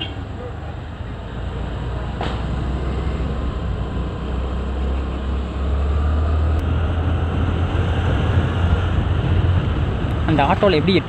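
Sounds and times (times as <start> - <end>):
road noise: 0.0 - 11.0
wind on microphone: 6.6 - 11.0.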